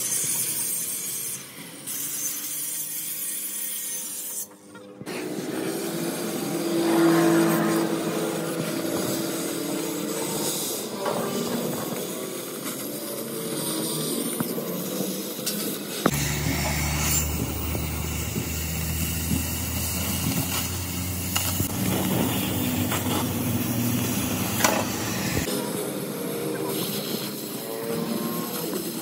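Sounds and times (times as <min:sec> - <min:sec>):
cutting torch hissing: 0:05.1 - 0:28.0
low machine hum: 0:16.1 - 0:25.5.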